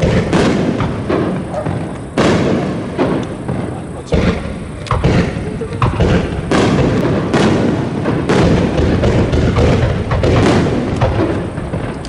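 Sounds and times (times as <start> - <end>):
firework shells bursting: 0.0 - 12.0.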